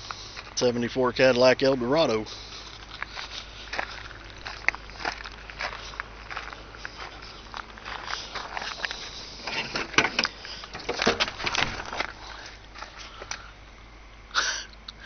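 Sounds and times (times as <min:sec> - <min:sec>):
footsteps on gravel: 0:02.0 - 0:13.4
handling noise: 0:06.8 - 0:13.1
car door unlatching and opening: 0:09.4 - 0:12.1.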